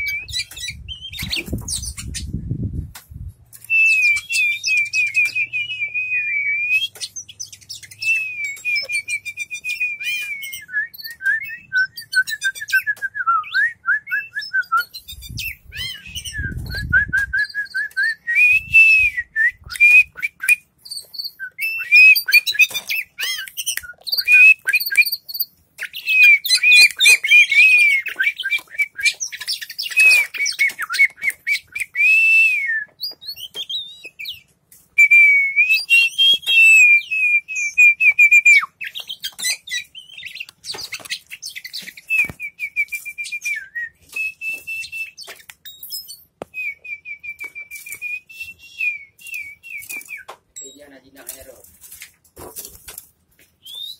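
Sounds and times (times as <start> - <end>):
bird singing whistled phrases: 3.6 - 34.4, 35.0 - 51.2, 53.6 - 53.9.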